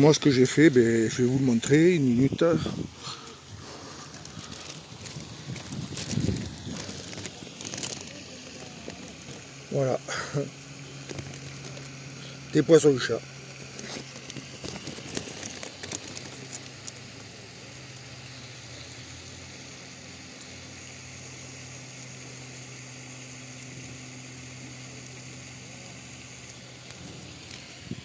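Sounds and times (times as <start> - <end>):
low outdoor hum: 0.0 - 28.0
plastic bag crinkling: 2.6 - 9.7, 10.8 - 12.2, 13.5 - 17.2.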